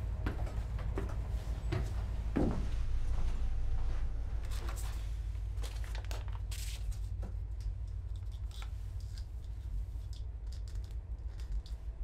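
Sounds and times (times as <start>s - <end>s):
steady low rumble: 0.0s - 12.0s
paper rustling: 4.5s - 7.2s.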